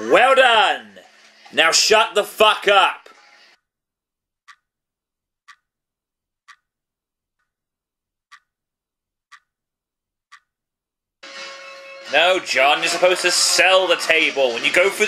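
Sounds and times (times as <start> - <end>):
clock ticking: 4.4 - 4.7, 5.4 - 5.7, 6.4 - 7.6, 8.2 - 8.6, 9.2 - 9.6, 10.3 - 10.6.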